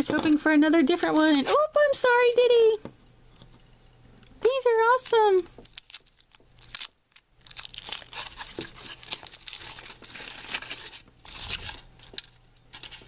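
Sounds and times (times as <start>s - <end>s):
foil wrapper crinkling and tearing: 5.6s - 13.0s.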